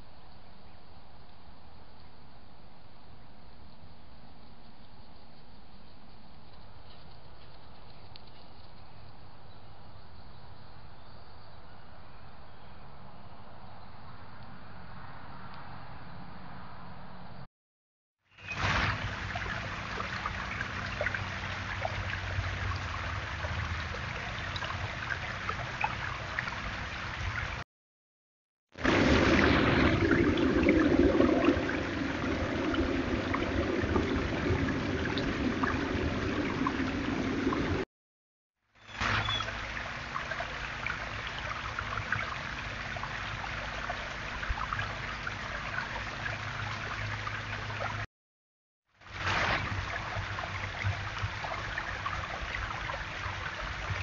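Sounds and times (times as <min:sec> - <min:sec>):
low hum: 0:00.0 - 0:17.5, 0:28.8 - 0:37.8
water dripping: 0:18.4 - 0:27.6, 0:28.8 - 0:37.8
waterfall splashing over rocks: 0:28.8 - 0:37.8.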